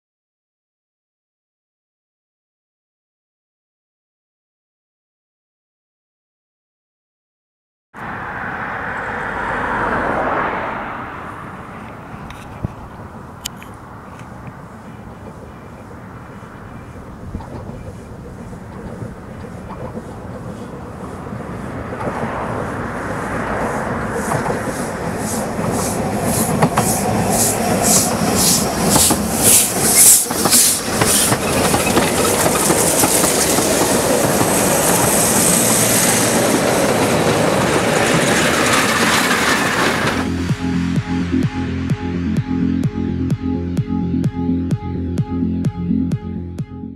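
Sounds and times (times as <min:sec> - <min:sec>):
train rumble: 0:08.0 - 0:44.9
rail clicks: 0:11.8 - 0:40.3.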